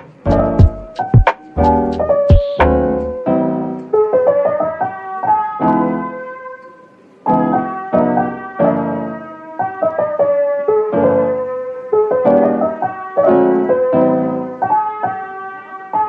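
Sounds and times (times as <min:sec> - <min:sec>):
piano music: 0:00.0 - 0:16.0.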